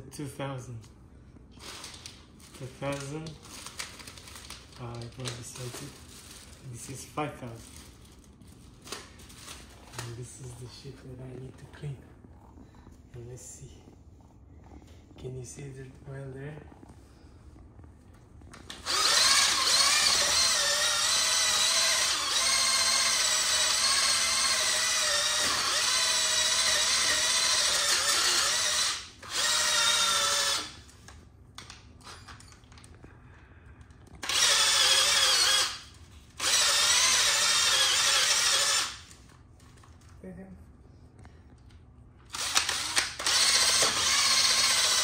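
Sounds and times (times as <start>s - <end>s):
power drill sanding tile: 18.8s - 30.7s, 34.2s - 35.8s, 42.4s - 45.0s.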